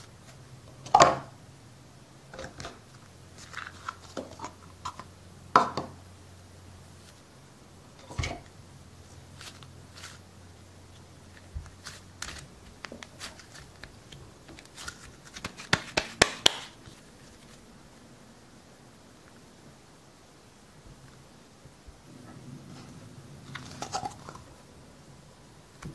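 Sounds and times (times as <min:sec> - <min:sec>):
modelling dough sticky rustles: 0:02.3 - 0:05.2, 0:06.7 - 0:18.0.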